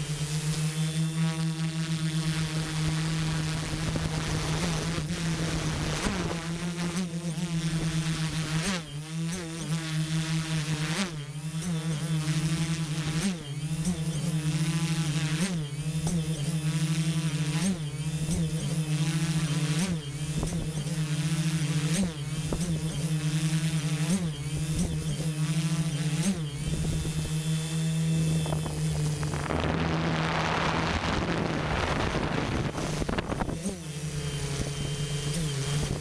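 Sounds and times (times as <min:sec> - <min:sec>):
drone propellers buzzing: 0:00.0 - 0:36.0
wind rushing over microphone: 0:28.1 - 0:34.8.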